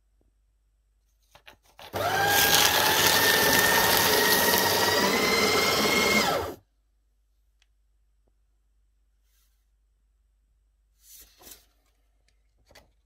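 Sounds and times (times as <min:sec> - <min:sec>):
paper shredder running: 0:01.9 - 0:06.6
paper rustling: 0:11.0 - 0:12.9.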